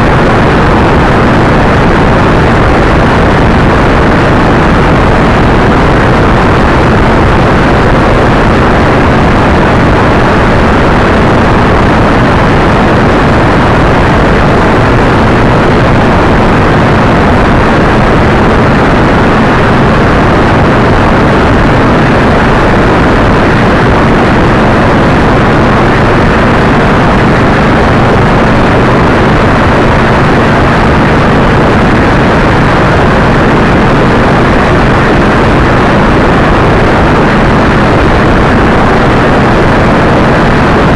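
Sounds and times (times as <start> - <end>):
road and engine drone: 0.0 - 40.9
wind roar on microphone: 0.0 - 40.9.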